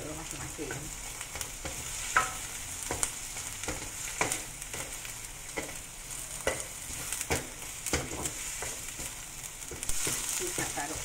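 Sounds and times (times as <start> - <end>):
paste sizzling in hot oil: 0.0 - 11.0
wooden spatula scraping pan: 5.5 - 9.1, 9.7 - 11.0.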